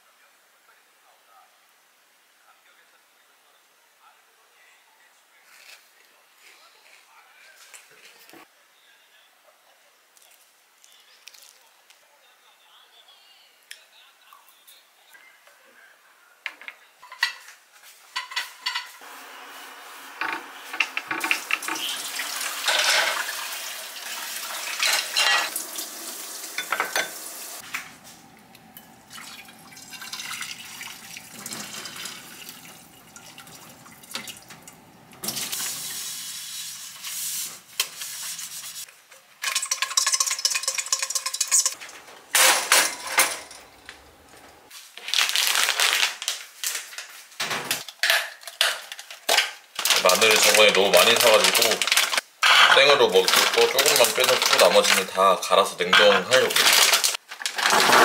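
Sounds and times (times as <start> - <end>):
plates and pans clattering: 16.5 - 19.0, 20.1 - 23.5, 24.6 - 25.6, 26.5 - 35.9, 39.4 - 44.6, 50.4 - 55.0, 55.8 - 58.0
water running and pouring: 19.0 - 37.4, 39.4 - 42.0, 49.8 - 52.2, 53.1 - 55.1.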